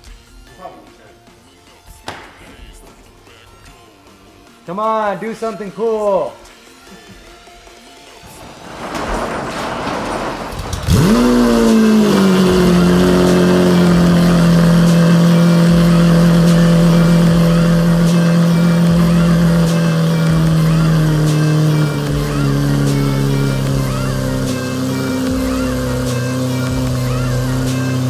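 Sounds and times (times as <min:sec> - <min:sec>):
car engine starting and idling: 0:08.2 - 0:28.0.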